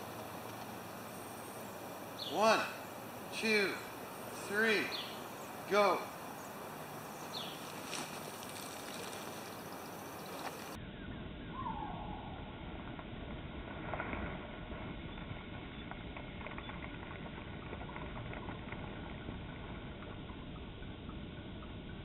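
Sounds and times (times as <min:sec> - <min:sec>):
faint crackles and ticks: 0:00.1 - 0:00.8, 0:07.6 - 0:10.8, 0:12.8 - 0:21.2.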